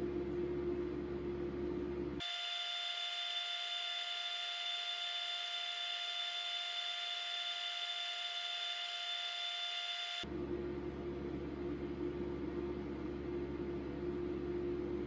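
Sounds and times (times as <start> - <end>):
low steady hum: 0.0 - 6.1, 10.2 - 15.0
high-pitched electrical whine: 2.2 - 10.3.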